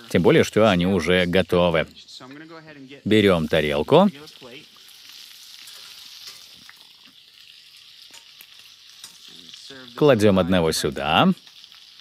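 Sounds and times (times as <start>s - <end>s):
scallops sizzling in a frying pan: 0.0s - 12.0s.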